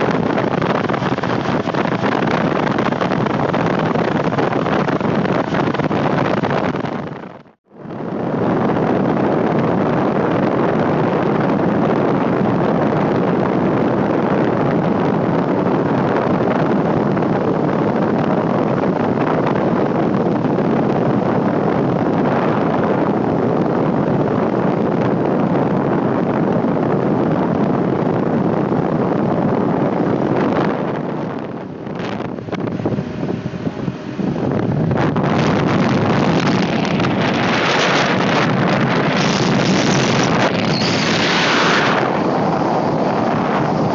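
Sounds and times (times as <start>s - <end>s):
wind rush over microphone: 0.0s - 43.9s
road noise: 28.5s - 43.9s.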